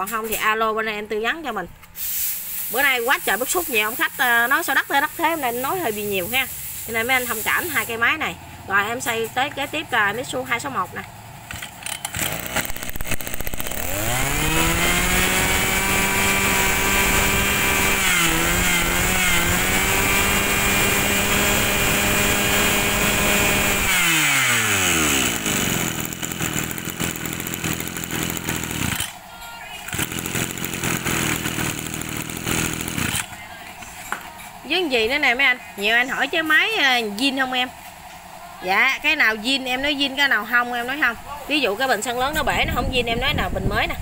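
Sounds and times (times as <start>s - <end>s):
brush cutter engine revving: 2.7s - 33.4s.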